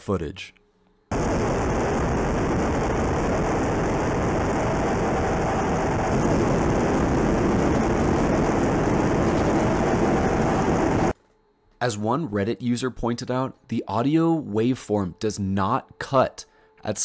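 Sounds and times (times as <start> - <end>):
jet cockpit rushing noise: 1.1 - 11.2
loud muffled ship noise: 1.1 - 11.2.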